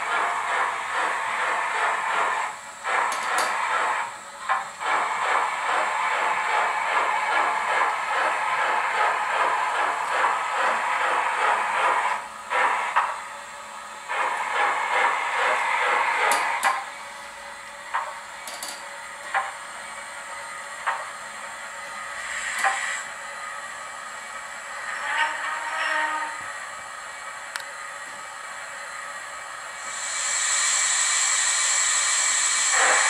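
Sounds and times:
model steam locomotive chuffing: 0:00.0 - 0:33.0
short steam hisses: 0:22.0 - 0:23.2, 0:29.8 - 0:33.0.

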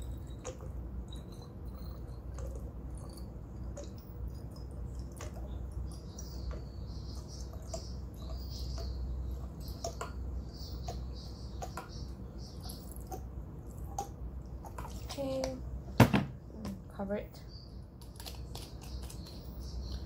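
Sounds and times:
liquid trickling into bottle: 0:00.0 - 0:10.2
steady low hum: 0:00.0 - 0:20.0.

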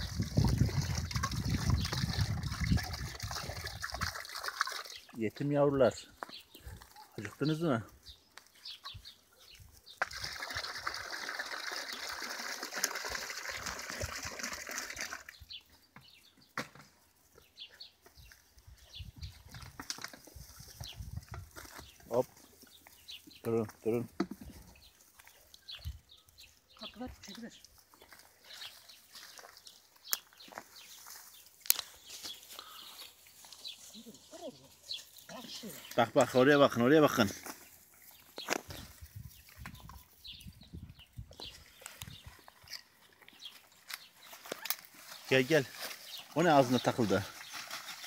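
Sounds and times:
water pouring: 0:00.0 - 0:05.2, 0:10.0 - 0:15.4
light scuffs and clicks: 0:27.6 - 0:35.3
plastic bag rustling: 0:43.6 - 0:48.0.

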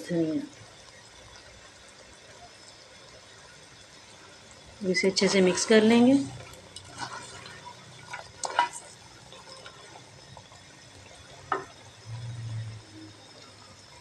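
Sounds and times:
frying sizzle: 0:00.0 - 0:14.0
wooden spoon scraping a pot: 0:05.0 - 0:10.0.

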